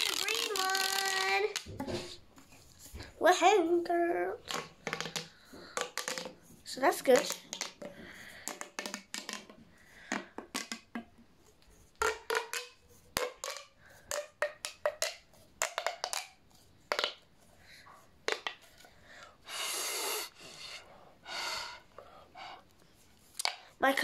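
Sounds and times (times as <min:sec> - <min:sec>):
plastic tube clicking and popping: 0:00.0 - 0:02.0, 0:04.4 - 0:17.3, 0:18.2 - 0:19.3, 0:23.3 - 0:23.7
air blown into tube: 0:19.4 - 0:21.9.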